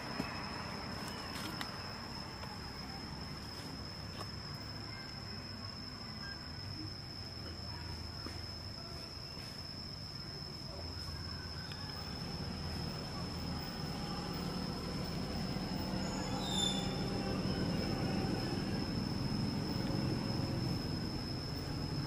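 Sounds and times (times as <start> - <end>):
high-pitched insect drone: 0.0 - 22.0
low motor rumble: 11.9 - 22.0.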